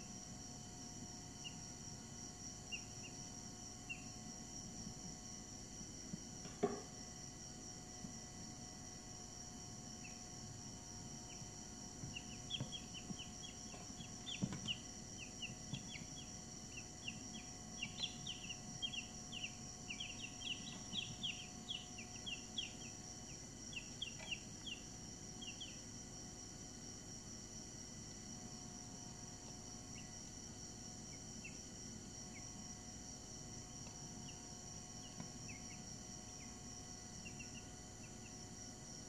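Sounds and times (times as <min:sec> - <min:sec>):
steady high-pitched whine: 0:00.0 - 0:38.9
chicks peeping: 0:02.7 - 0:03.2, 0:11.3 - 0:25.8, 0:29.9 - 0:30.1, 0:35.0 - 0:36.6, 0:37.2 - 0:38.3.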